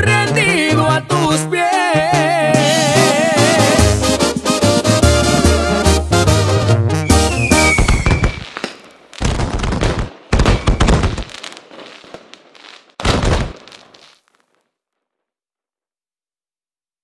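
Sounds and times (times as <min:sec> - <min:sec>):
brass band note: 0:02.7 - 0:07.8
fireworks exploding with crackle: 0:07.0 - 0:15.4.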